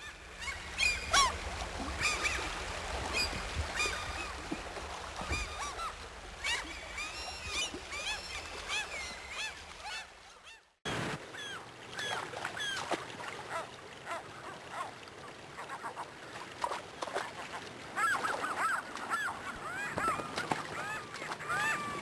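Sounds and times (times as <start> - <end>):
river water rushing: 0.0 - 10.2
gulls calling: 0.0 - 15.0, 17.9 - 22.0.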